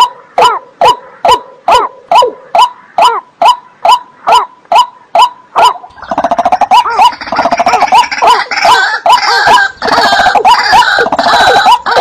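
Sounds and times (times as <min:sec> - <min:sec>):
waterbird calling: 0:02.1 - 0:12.0
rapid stuttering bird calls: 0:02.6 - 0:12.0.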